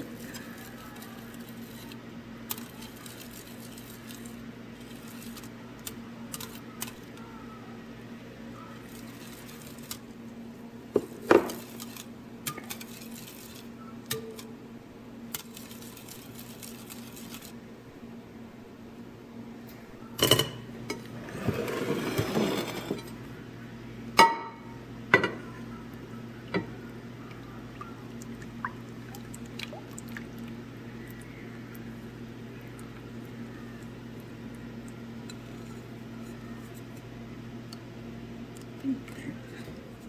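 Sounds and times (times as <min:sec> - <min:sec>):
whisk stirring batter in glass bowl: 0:00.0 - 0:05.5, 0:08.8 - 0:10.0, 0:11.5 - 0:13.8, 0:15.3 - 0:17.6
steady low hum: 0:00.0 - 0:40.0.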